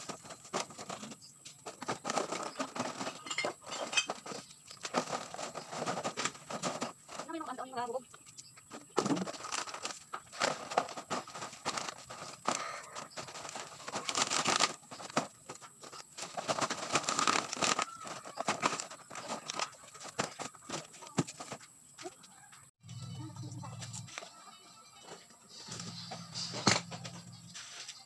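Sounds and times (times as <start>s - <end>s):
bottles stuffed into plastic sack: 0.0s - 7.4s, 8.9s - 21.6s
plastic bottles crinkling: 0.0s - 7.9s, 8.7s - 21.6s.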